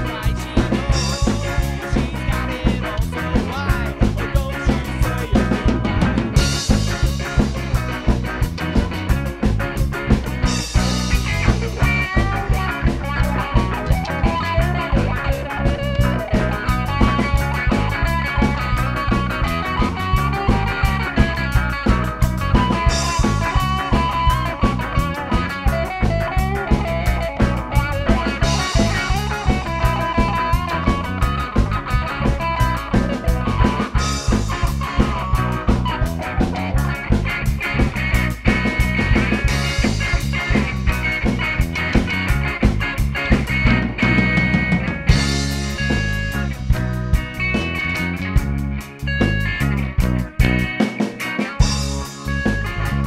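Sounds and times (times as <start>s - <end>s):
drum kit beat: 0.0s - 53.0s
electric guitars: 0.0s - 53.0s.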